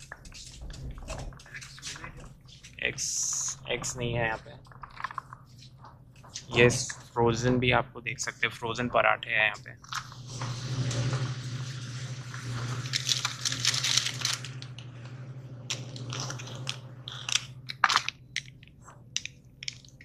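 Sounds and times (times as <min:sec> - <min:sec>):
low hum: 0:00.0 - 0:20.0
plastic packaging crinkling: 0:04.6 - 0:07.2, 0:12.3 - 0:14.8, 0:15.7 - 0:18.6.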